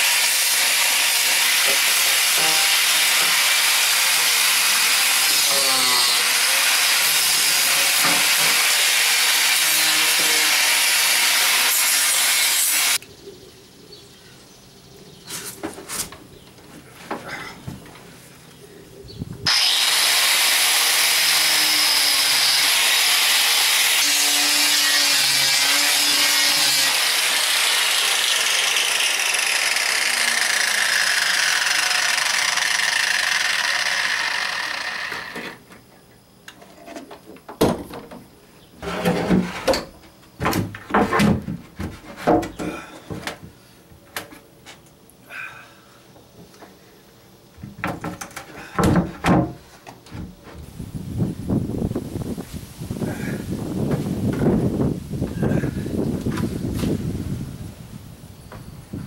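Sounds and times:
angle grinder grinding: 0.0 - 13.0, 19.5 - 35.7
wooden panel knocks and thumps: 47.6 - 50.4.

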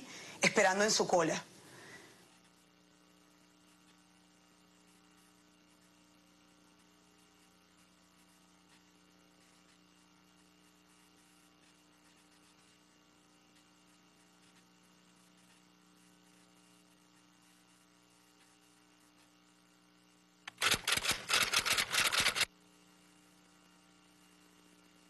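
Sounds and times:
faint electrical hum: 0.0 - 25.0
rapid clicking: 20.5 - 22.5.

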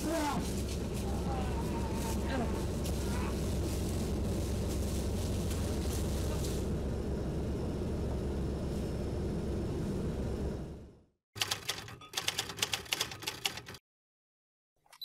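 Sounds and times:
car interior rumble: 0.0 - 10.8.

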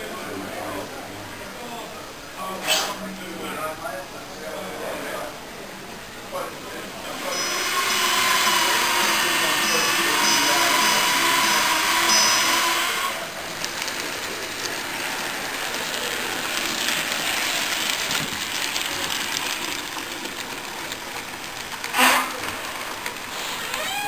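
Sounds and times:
hall crowd hubbub: 0.0 - 24.0
model train running on track: 3.4 - 24.0
loud burst of noise: 7.2 - 13.5.

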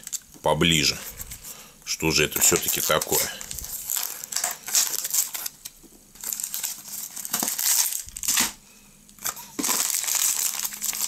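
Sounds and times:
cardboard box tearing and rustling: 9.2 - 11.0.

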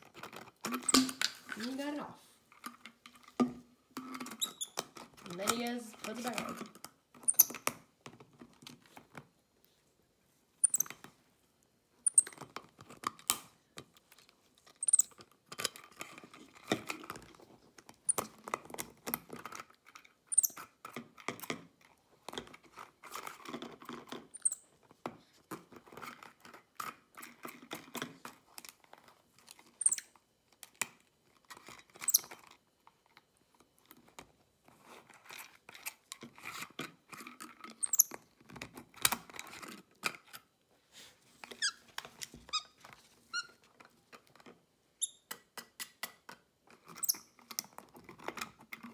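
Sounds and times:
monkey handling bottle cap: 0.6 - 1.8, 7.2 - 7.7, 10.6 - 11.0, 12.0 - 12.5, 14.8 - 15.2, 20.3 - 20.6, 24.3 - 24.6, 29.8 - 30.0, 32.0 - 32.4, 37.8 - 38.2
monkey squeaks: 7.2 - 7.5, 10.6 - 10.9, 12.0 - 12.3, 14.8 - 15.1, 20.3 - 20.6, 24.3 - 24.7, 29.8 - 30.0, 32.0 - 32.3, 37.8 - 38.1, 47.0 - 47.2.

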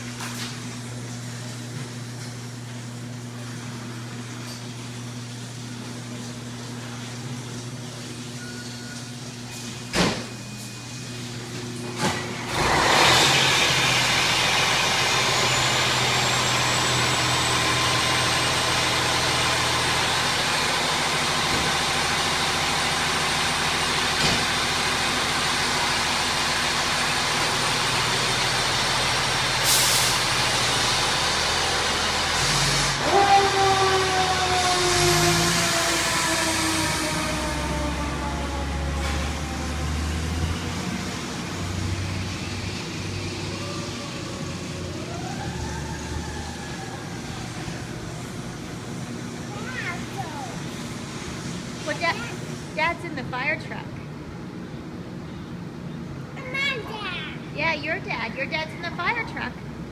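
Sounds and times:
truck pulling out: 11.7 - 52.7
diesel engine idling: 12.6 - 52.8.

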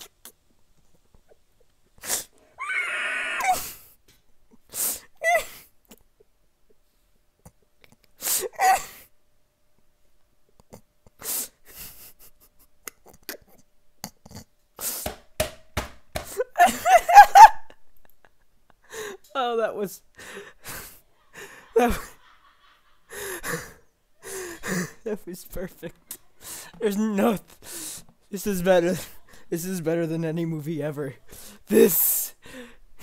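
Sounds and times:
person wheezing laughter: 8.3 - 9.1, 16.3 - 19.2, 20.6 - 25.2.

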